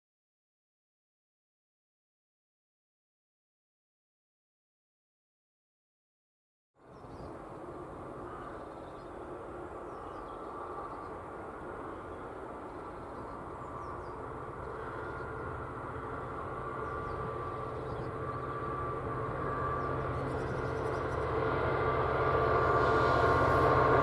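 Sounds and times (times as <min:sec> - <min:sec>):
locomotive engine drone: 0:06.8 - 0:24.0
low hum: 0:06.8 - 0:24.0.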